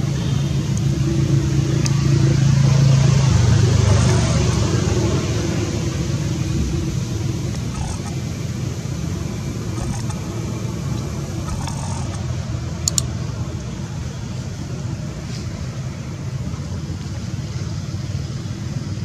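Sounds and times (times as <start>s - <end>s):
low background rumble: 0.0s - 19.0s
sharp clicks: 9.8s - 10.2s, 11.0s - 12.2s, 12.8s - 13.1s.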